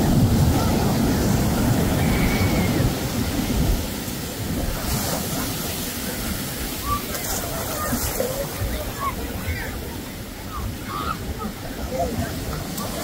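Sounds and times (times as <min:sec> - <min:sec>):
ocean surf washing: 0:00.0 - 0:13.0.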